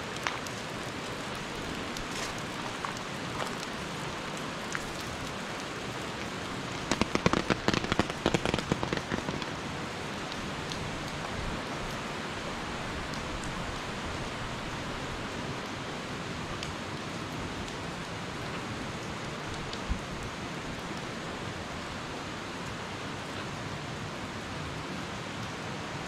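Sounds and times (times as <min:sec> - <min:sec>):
rain falling: 0:00.0 - 0:26.0
sharp taps and knocks: 0:06.8 - 0:09.5.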